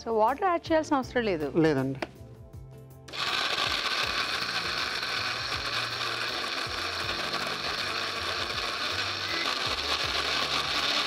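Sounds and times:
mixer grinder running: 0:03.1 - 0:11.0.

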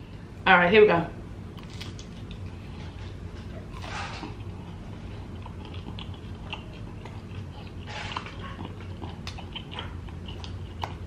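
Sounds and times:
crunchy biting and chewing: 0:01.5 - 0:11.0
wet mouth sounds: 0:03.5 - 0:11.0.

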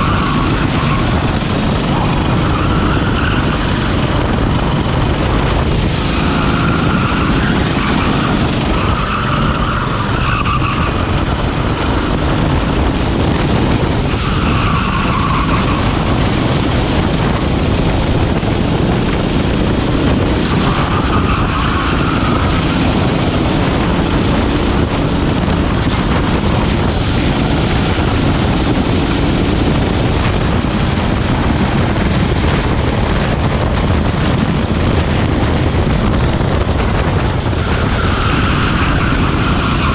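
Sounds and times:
tyre squeals: 0:00.0 - 0:04.0, 0:06.2 - 0:11.3, 0:14.1 - 0:16.1, 0:20.5 - 0:22.9, 0:37.6 - 0:39.9
go-kart engine running hard: 0:00.0 - 0:39.9
wind rush on microphone: 0:00.0 - 0:39.9.

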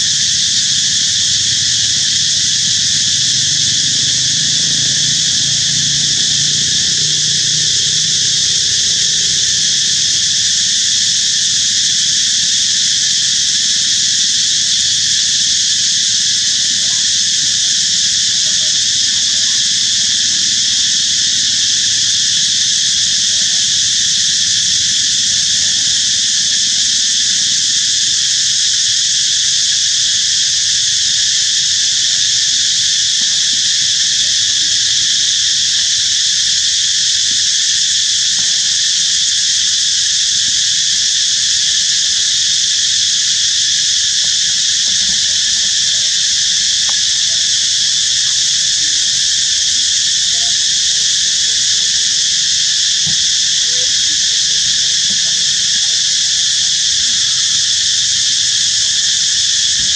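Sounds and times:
insects buzzing: 0:00.0 - 0:59.9.

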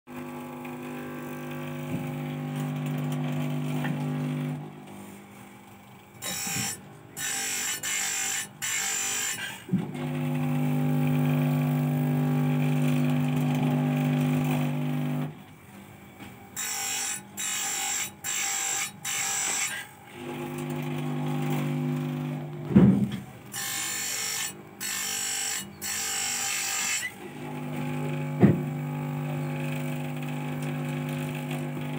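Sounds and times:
chain sharpener motor hum: 0:00.1 - 0:04.7, 0:06.2 - 0:15.3, 0:16.6 - 0:22.7, 0:23.4 - 0:31.9.

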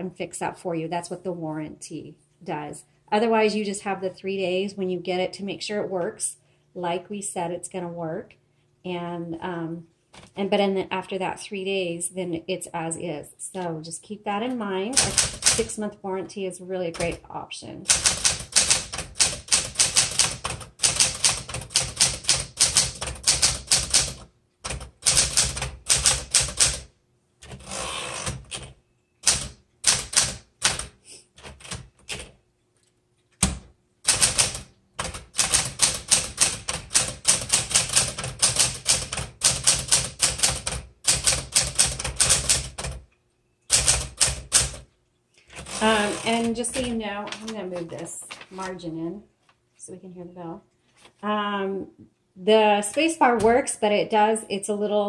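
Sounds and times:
typewriter keystroke clacks: 0:15.0 - 0:15.7, 0:17.9 - 0:26.8, 0:28.4 - 0:32.3, 0:33.4 - 0:43.0, 0:43.7 - 0:44.8.

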